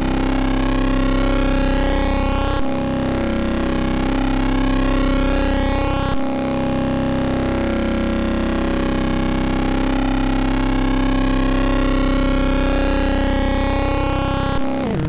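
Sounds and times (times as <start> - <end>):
synthesizer drone: 10.9 - 15.0.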